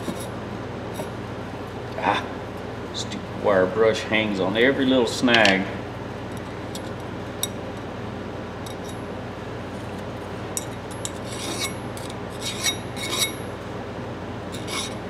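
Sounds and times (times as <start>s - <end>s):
file scraping steel: 11.0s - 13.5s, 14.5s - 15.0s.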